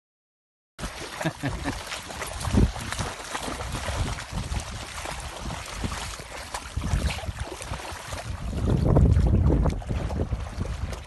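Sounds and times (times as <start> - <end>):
water splashing: 0.8 - 11.0
wind on microphone: 2.4 - 11.0.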